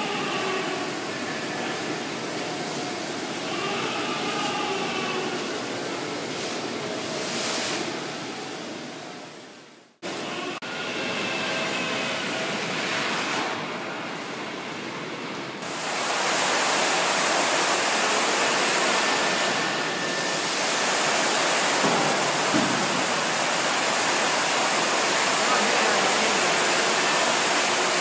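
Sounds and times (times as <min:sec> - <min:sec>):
water spraying hiss: 0:15.6 - 0:28.0.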